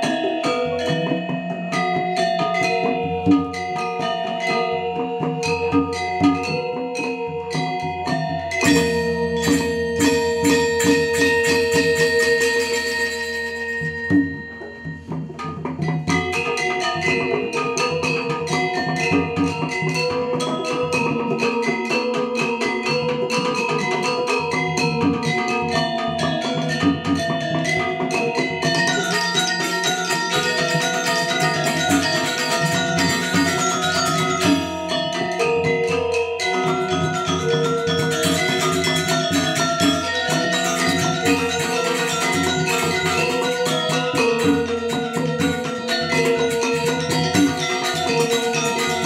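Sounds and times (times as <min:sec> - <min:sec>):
drums: 0:00.0 - 0:49.0
metallophones in rapid struck patterns: 0:00.0 - 0:49.0.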